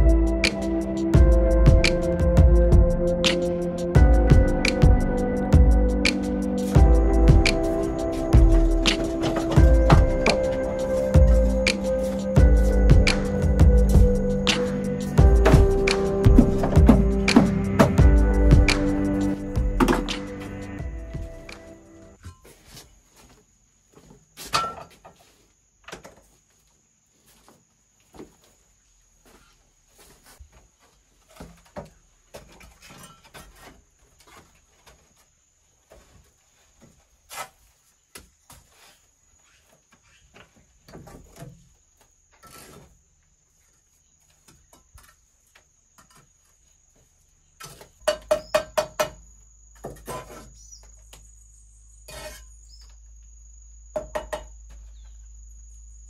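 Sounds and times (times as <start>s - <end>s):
trowel scraping mortar on bricks: 49.9s - 50.7s, 52.1s - 52.6s.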